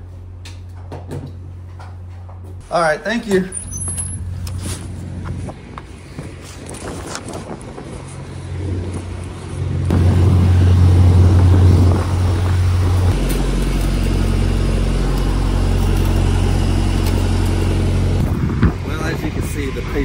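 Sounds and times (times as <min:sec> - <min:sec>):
diesel engine idling: 0:09.6 - 0:20.0.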